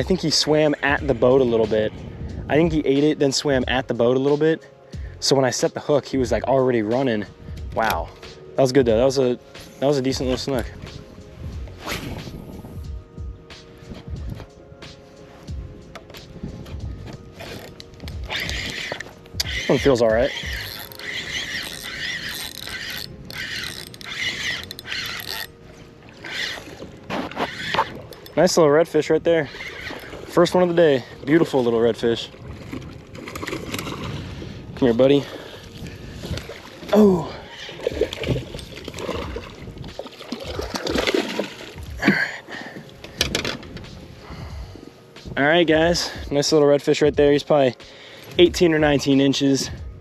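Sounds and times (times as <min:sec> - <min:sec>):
water splashing and sloshing: 0:00.0 - 0:46.6
fishing reel clicking: 0:17.4 - 0:25.6, 0:26.2 - 0:26.8, 0:27.5 - 0:28.6, 0:29.4 - 0:30.2.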